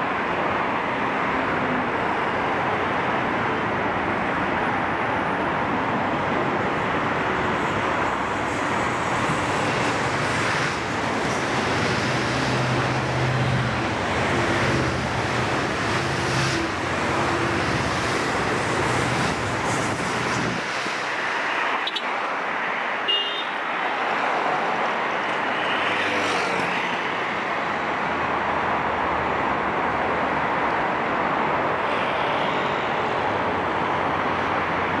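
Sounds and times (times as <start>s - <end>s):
dense highway traffic: 0.0s - 35.0s
low hum of train engine: 3.1s - 20.9s.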